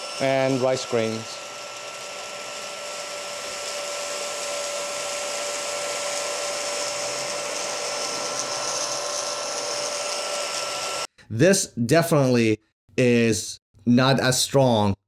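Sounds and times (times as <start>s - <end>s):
stick vacuum whining: 0.0s - 11.1s.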